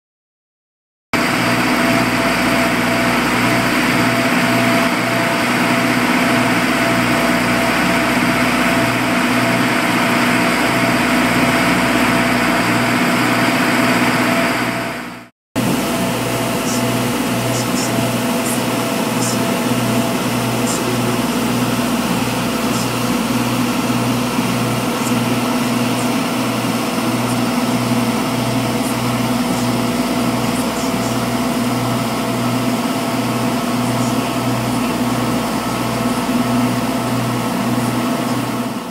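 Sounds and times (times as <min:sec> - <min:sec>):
boat engine droning: 0:01.2 - 0:38.9
churning wake rushing: 0:15.6 - 0:38.7.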